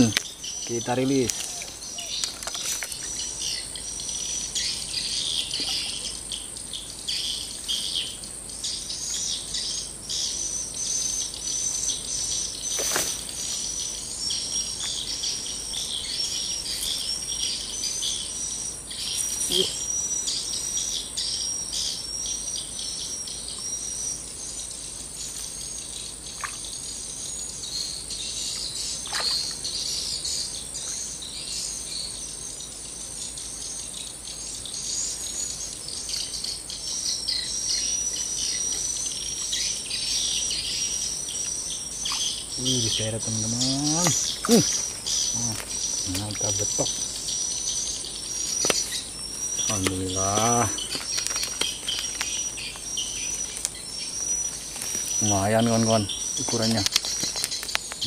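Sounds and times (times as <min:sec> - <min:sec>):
high-pitched bird chirping: 0:00.0 - 0:02.4, 0:42.0 - 0:57.7
high insect drone: 0:00.0 - 0:58.0.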